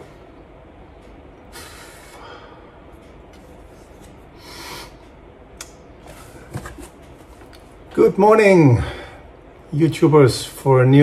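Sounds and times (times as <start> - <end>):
low room hum: 0.0 - 11.0
heavy breaths through nose: 4.4 - 5.0.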